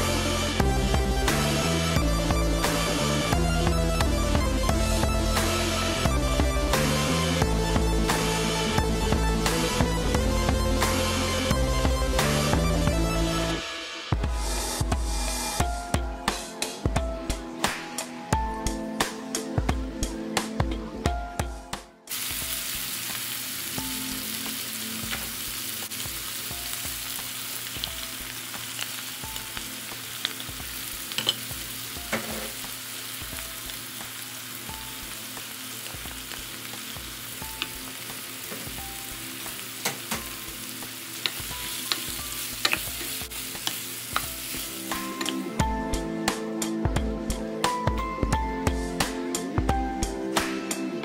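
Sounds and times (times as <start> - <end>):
food sizzling in a pan: 22.1 - 46.0
utensil clicking against pan: 41.2 - 44.3.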